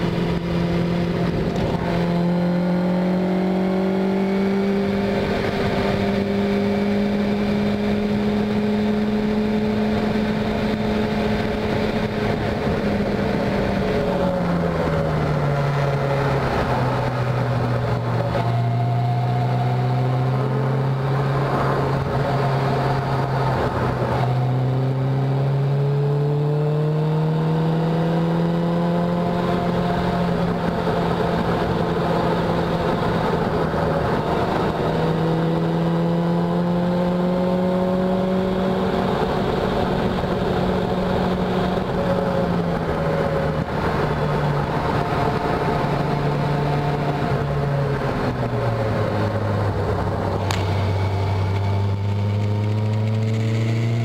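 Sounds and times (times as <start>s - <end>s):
car engine at speed: 0.0s - 54.0s.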